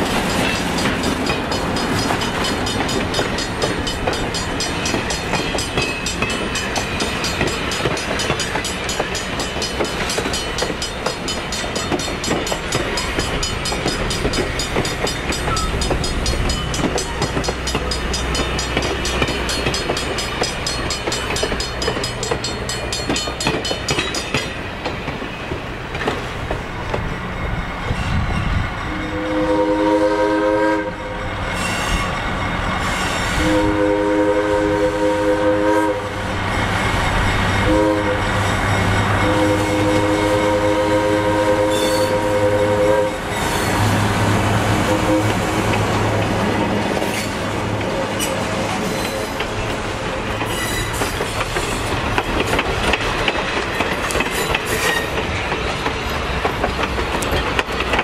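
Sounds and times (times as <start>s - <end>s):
wheels clicking over rail joints: 0.0s - 28.3s, 45.2s - 58.0s
diesel locomotive rumbling: 0.0s - 58.0s
locomotive air horn: 28.9s - 32.1s, 33.0s - 36.3s, 37.6s - 38.4s, 39.2s - 44.0s, 44.7s - 45.7s.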